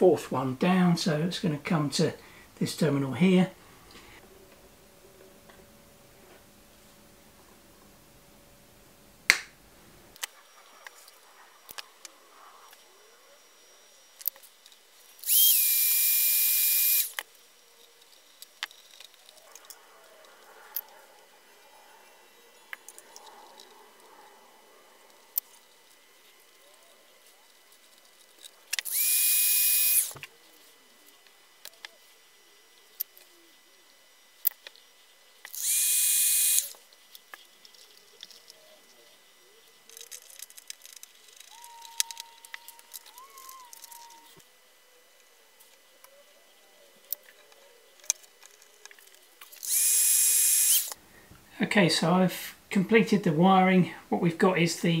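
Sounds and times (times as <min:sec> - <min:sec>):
small power tool whirring: 0:10.2 - 0:20.9, 0:25.3 - 0:46.1, 0:47.0 - 0:51.0
hot-air tool blowing: 0:15.2 - 0:17.2, 0:28.8 - 0:30.3, 0:35.5 - 0:36.8, 0:49.6 - 0:51.0.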